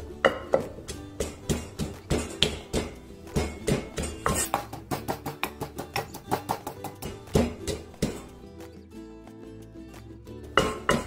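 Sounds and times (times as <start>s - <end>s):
wooden pestle pounding in mortar: 0.2s - 8.4s, 10.6s - 11.0s.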